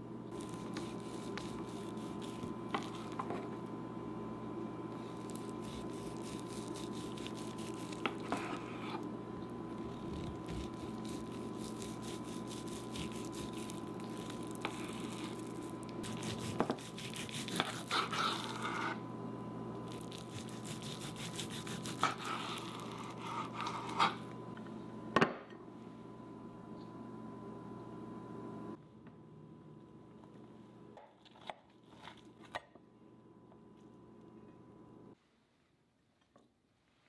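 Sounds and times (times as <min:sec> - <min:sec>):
steady low hum: 0:00.0 - 0:35.2
knife sawing through meat: 0:00.4 - 0:03.1, 0:05.1 - 0:09.0, 0:09.9 - 0:15.4, 0:16.0 - 0:19.0, 0:20.1 - 0:24.2.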